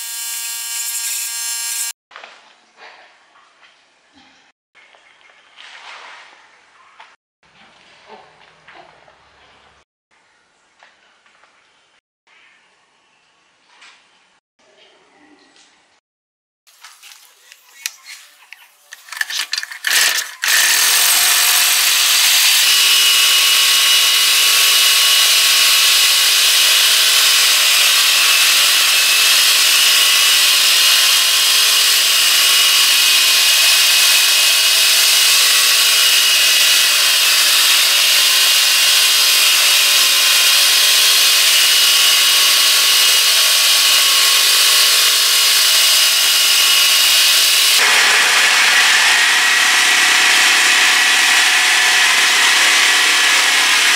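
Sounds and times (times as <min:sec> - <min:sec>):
small engine running at high speed: 0:00.0 - 0:02.0, 0:19.2 - 0:53.9.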